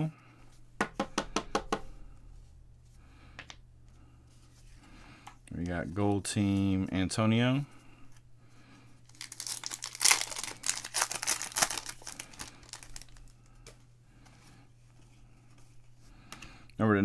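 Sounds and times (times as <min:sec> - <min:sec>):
card pack wrapper crinkling and tearing: 0:09.1 - 0:13.4.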